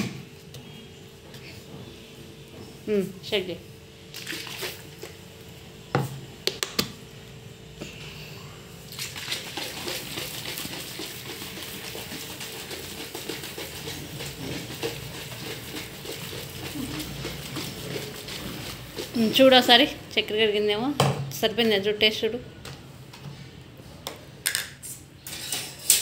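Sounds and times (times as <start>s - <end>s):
water sloshing in shaken container: 4.1s - 5.1s, 8.9s - 19.8s.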